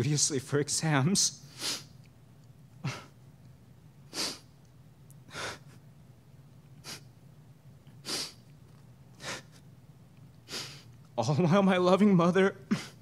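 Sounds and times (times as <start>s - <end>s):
man sniffling while crying: 1.5s - 2.0s, 2.8s - 3.2s, 4.1s - 4.6s, 5.2s - 5.9s, 6.8s - 7.1s, 8.0s - 8.4s, 9.2s - 9.7s, 10.4s - 10.9s, 12.7s - 13.0s.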